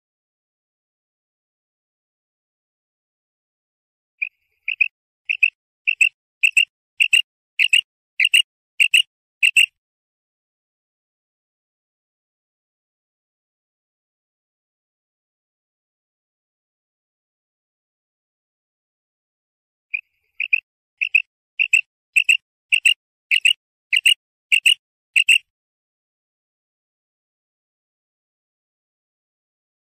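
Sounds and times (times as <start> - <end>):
quail calling: 4.2 - 9.7, 19.9 - 25.4.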